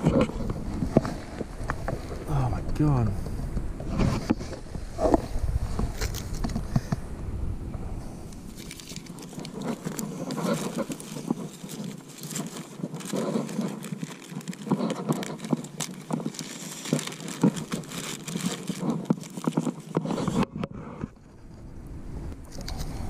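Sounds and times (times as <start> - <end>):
plastic bags and wrappers rustling: 5.8 - 7.0, 8.3 - 21.3.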